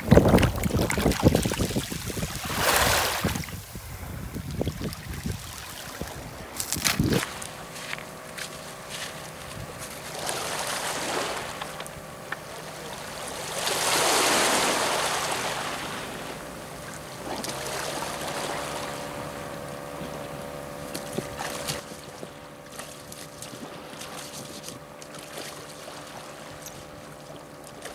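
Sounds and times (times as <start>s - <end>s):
waves washing up shingle beach: 0.0s - 3.8s, 4.6s - 20.0s
faint steady hum: 0.0s - 27.9s.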